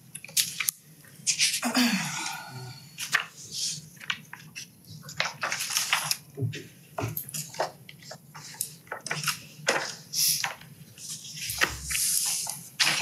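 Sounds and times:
paper rustling and shuffling: 0:03.0 - 0:13.0.

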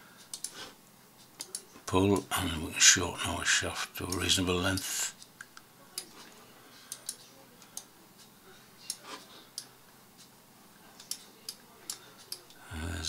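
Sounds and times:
computer mouse clicks: 0:00.2 - 0:00.6, 0:01.4 - 0:01.7, 0:06.9 - 0:07.9, 0:11.0 - 0:12.6.

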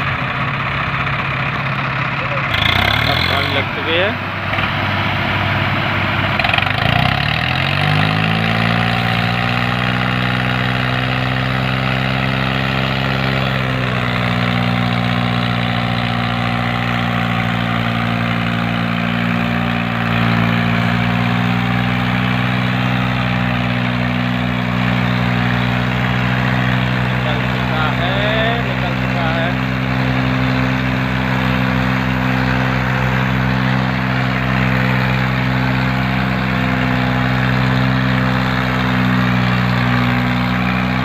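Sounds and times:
tractor diesel engines under load: 0:00.0 - 0:41.0.

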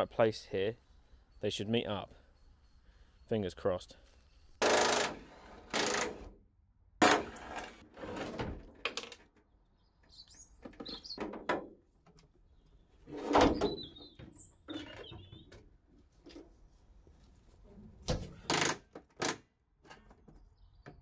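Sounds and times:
car bonnet clunking and scraping: 0:13.1 - 0:15.5.

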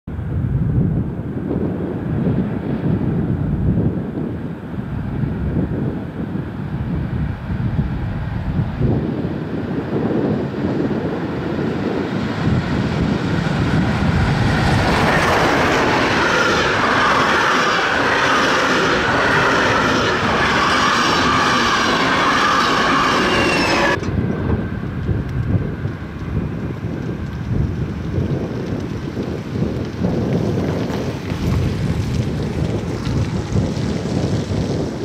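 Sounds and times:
train wheels rattling on rails: 0:10.5 - 0:34.9
high whining tones: 0:12.9 - 0:24.2.

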